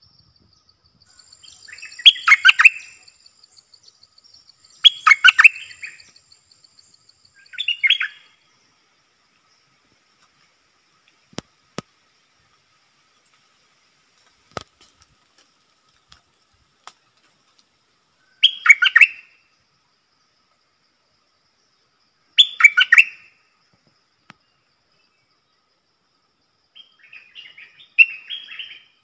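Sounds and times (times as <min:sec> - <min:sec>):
bulbul singing: 0:00.0 - 0:08.4.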